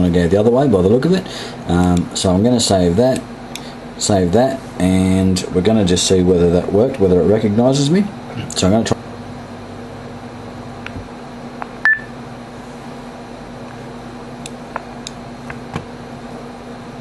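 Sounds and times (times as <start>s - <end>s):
steady low hum: 0.0s - 17.0s
short high electronic beep: 11.9s - 12.1s.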